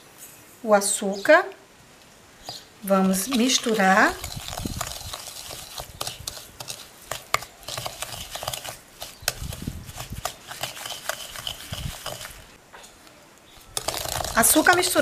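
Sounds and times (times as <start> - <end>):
wooden spatula scraping glass bowl: 3.0 - 12.4.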